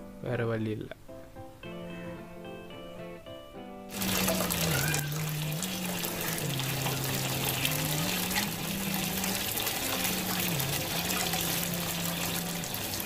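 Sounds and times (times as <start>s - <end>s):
background music held notes: 0.0s - 13.0s
hose water running into tank: 3.9s - 13.0s.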